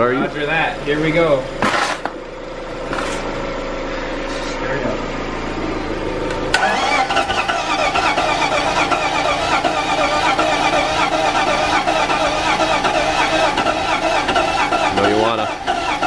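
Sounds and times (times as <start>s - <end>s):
car starter cranking engine: 6.2s - 16.0s.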